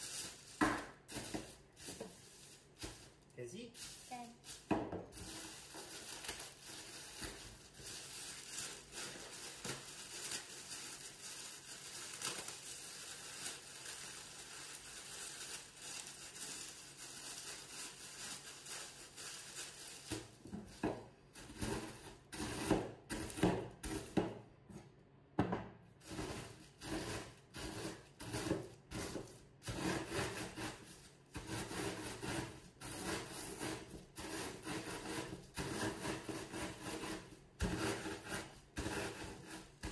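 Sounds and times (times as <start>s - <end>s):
plastic bag crinkling: 0.0s - 20.5s
rolling pin crunching crumbs: 4.4s - 24.4s, 26.0s - 39.9s.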